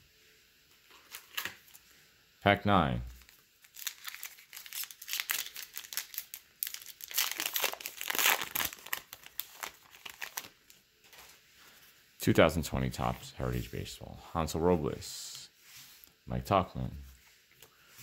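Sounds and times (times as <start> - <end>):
wrapper crinkling and tearing: 1.0 - 1.8, 3.2 - 11.3.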